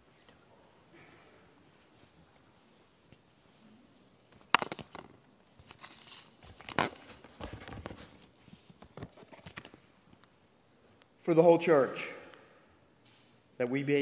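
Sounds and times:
papers rustling: 4.3 - 9.9.

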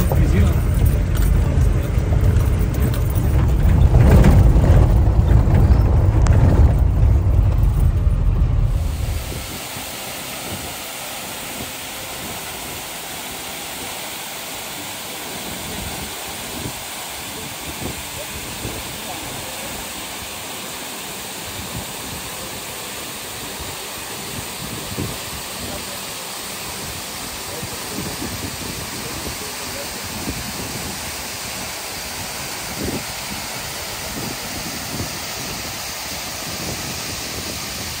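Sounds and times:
low rumbles: 0.0 - 9.7
waterfall rushing: 0.0 - 38.0.

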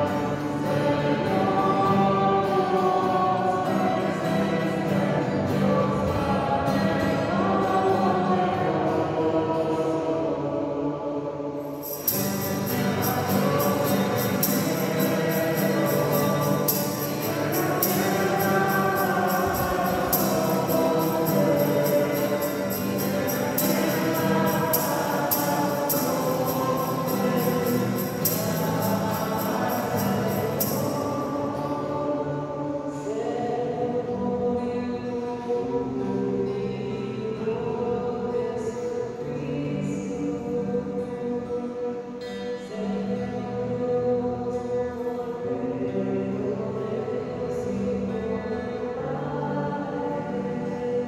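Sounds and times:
group singing a hymn: 0.0 - 51.0
steady percussion beat: 11.8 - 30.9.

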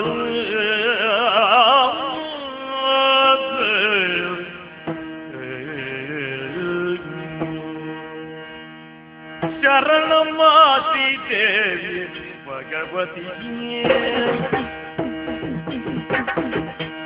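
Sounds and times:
ornamented melody line: 3.4 - 17.0
drum strokes: 13.9 - 17.0.

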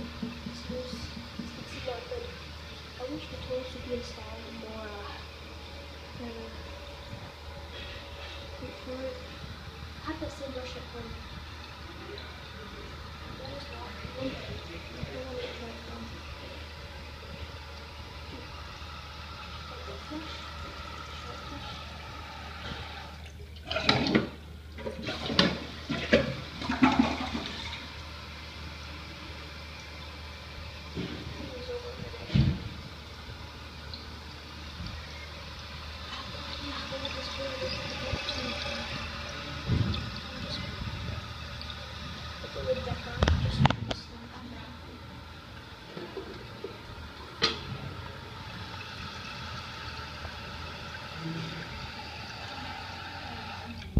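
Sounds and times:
faint steady hum: 0.0 - 53.9
toilet flushing: 0.0 - 53.9
water hissing through fill valve: 0.0 - 53.9.

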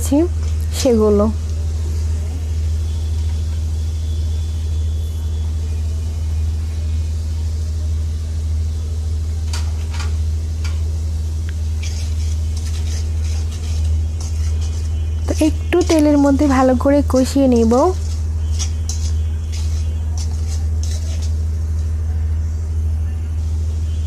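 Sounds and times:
onion paste sizzling in oil: 0.0 - 24.0
steady low hum: 0.0 - 24.0
spatula clinking and scraping pan: 11.8 - 21.5.

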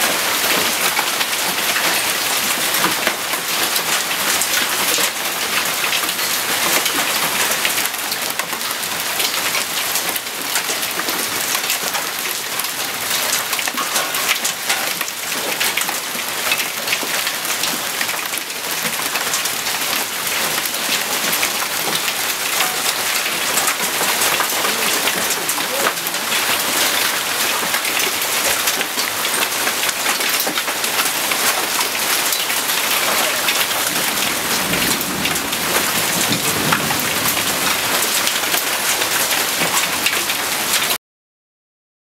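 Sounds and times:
hail ticking on hard surfaces: 0.0 - 41.0
heavy rain hiss: 17.6 - 40.8.

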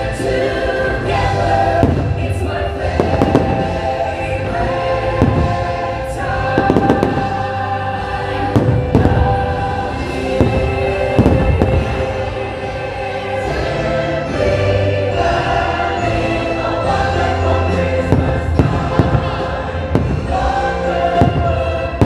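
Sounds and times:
show music with choir: 0.0 - 22.0
fireworks bursting: 1.4 - 12.9, 17.3 - 22.0.

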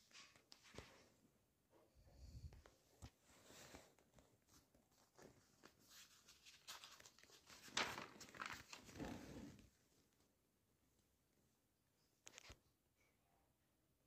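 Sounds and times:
paper page turning: 3.0 - 9.6, 12.2 - 12.6.

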